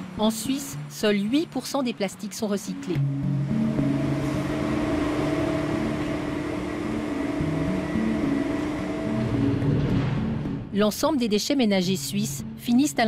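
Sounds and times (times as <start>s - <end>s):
low background music notes: 0.0s - 13.0s
industrial hum and ventilation: 3.0s - 10.9s.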